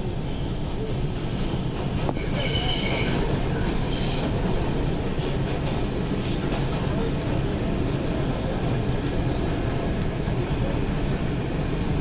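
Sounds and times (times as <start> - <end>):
train wheels rumbling on track: 0.0 - 12.0
high-pitched wheel squeals: 2.3 - 3.2.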